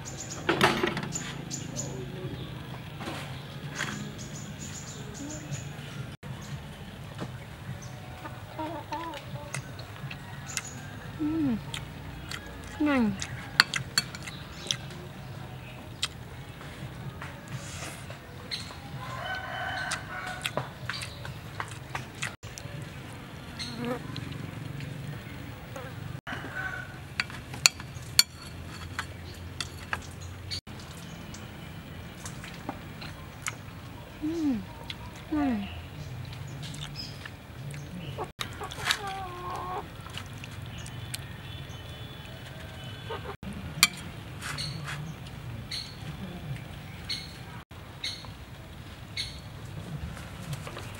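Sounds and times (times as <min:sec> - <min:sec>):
hen clucking: 0:08.2 - 0:13.8, 0:38.0 - 0:40.0, 0:42.8 - 0:44.0
rooster crowing: 0:19.0 - 0:20.7, 0:25.8 - 0:27.2, 0:42.2 - 0:43.2.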